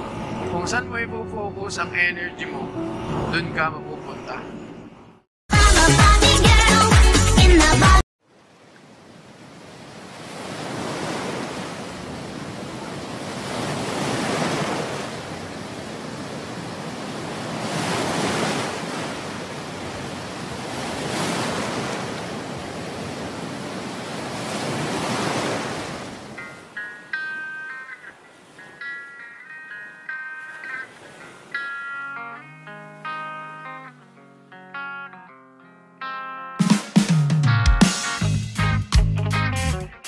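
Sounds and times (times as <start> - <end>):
sea waves breaking on beach: 8.2 - 32.2.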